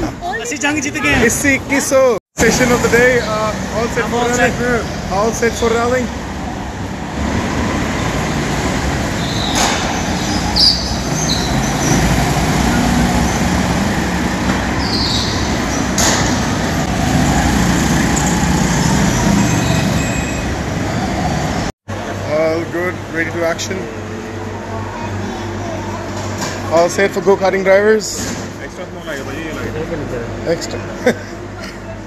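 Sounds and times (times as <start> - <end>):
go-kart engines droning: 0.0 - 25.4.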